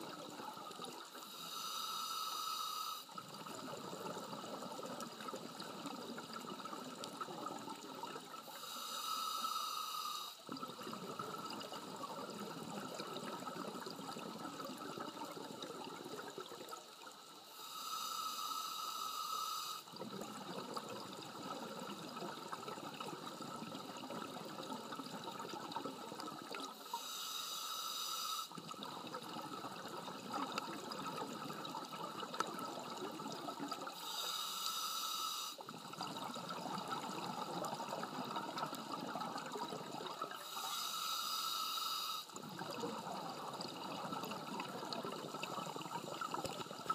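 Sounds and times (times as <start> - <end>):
regulator hissing inhale: 1.2 - 3.1, 8.4 - 10.4, 17.4 - 19.9, 26.8 - 28.6, 34.0 - 35.6, 40.4 - 42.4
exhaled bubbles gurgling: 3.1 - 8.5, 10.5 - 17.2, 19.9 - 26.8, 28.5 - 34.1, 35.6 - 40.6, 42.3 - 46.9.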